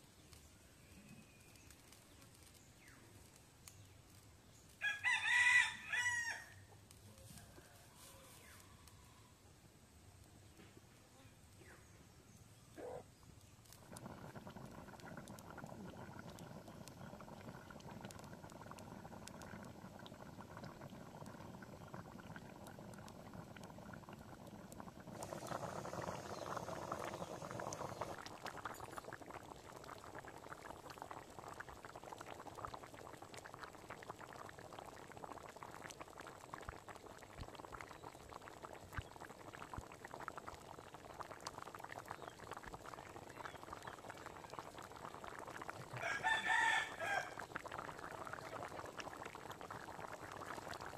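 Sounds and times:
curry bubbling at a boil: 0.0 - 8.6, 11.6 - 50.9.

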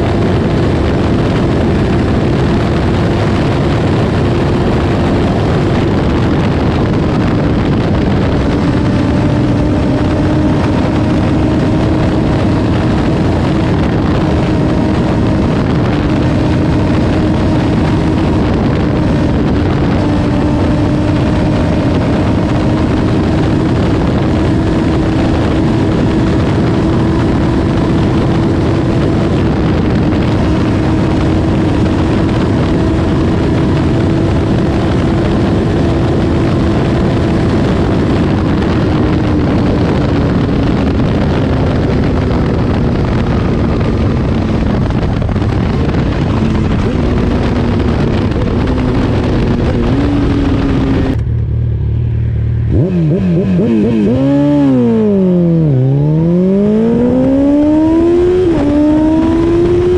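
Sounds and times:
motorcycle engine drone: 0.0 - 59.9
wind rush on microphone: 0.0 - 59.9.

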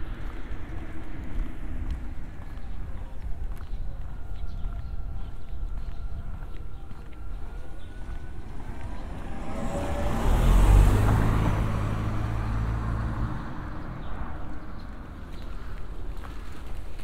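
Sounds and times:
car driving past: 7.6 - 16.0.

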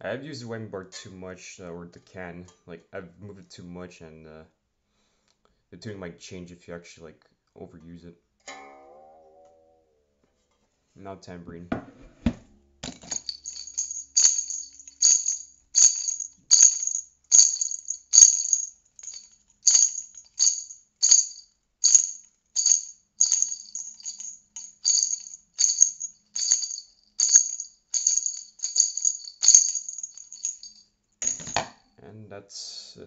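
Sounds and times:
jingle bells shaken: 12.9 - 31.6.

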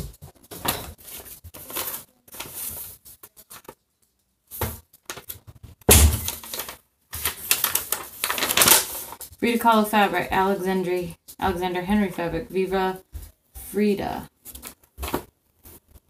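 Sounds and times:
package contents crinkling: 6.2 - 9.4
paper slip rustling: 6.2 - 12.8.

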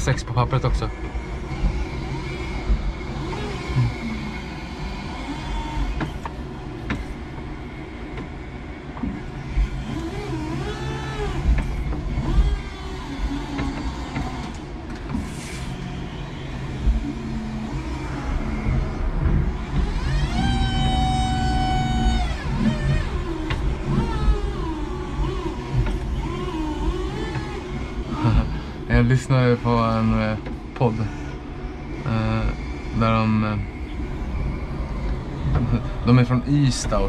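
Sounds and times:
forklift electric hum: 0.0 - 37.0
motor whine: 0.0 - 37.0
sharp clicks and knocks: 22.1 - 26.4.

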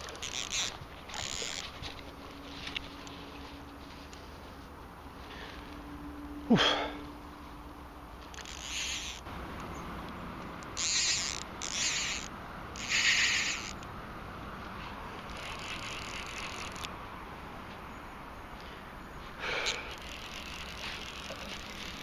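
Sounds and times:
fishing reel ratchet buzzing: 0.0 - 1.8, 8.3 - 9.3, 10.6 - 13.8, 15.2 - 16.9, 19.6 - 22.0
zip rising in pitch: 8.3 - 9.3, 10.7 - 13.8, 15.2 - 16.9.

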